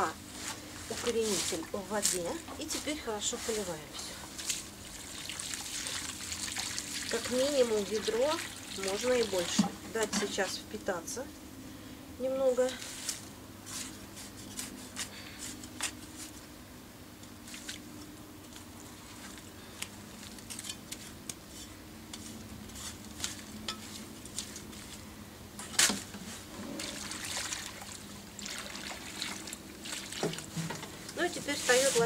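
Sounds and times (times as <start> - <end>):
hands rustling soil and leaves: 0.0 - 9.6, 12.5 - 16.5, 17.4 - 32.0
water splashing onto soil: 4.4 - 9.6, 26.8 - 30.6.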